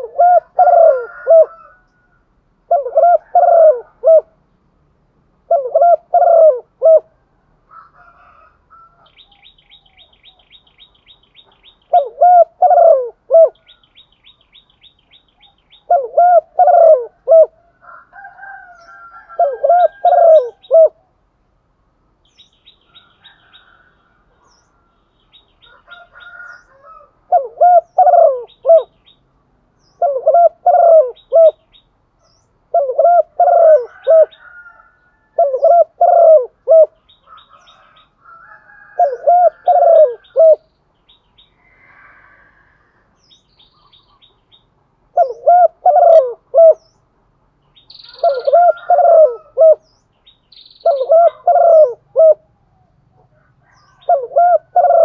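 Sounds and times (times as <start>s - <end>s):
dove cooing: 0.0s - 4.4s, 5.4s - 10.4s, 11.9s - 13.8s, 15.4s - 21.1s, 25.6s - 29.0s, 30.0s - 31.7s, 32.7s - 40.7s, 45.1s - 46.9s, 48.0s - 49.9s, 50.8s - 55.0s
small birds chirping: 9.0s - 17.2s, 22.2s - 42.5s, 43.1s - 55.0s.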